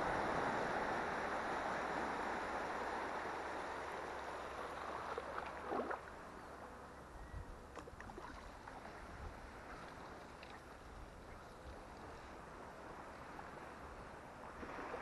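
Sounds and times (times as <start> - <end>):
small splashes: 4.8 - 6.2, 7.8 - 10.8.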